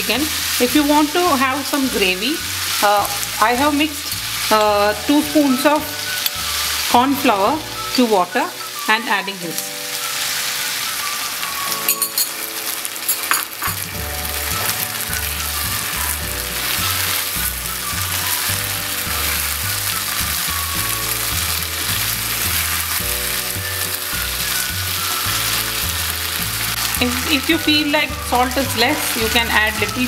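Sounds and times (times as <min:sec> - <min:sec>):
chicken sizzling in a pan: 0:00.0 - 0:30.0
spoon clinking against pan: 0:11.8 - 0:12.4.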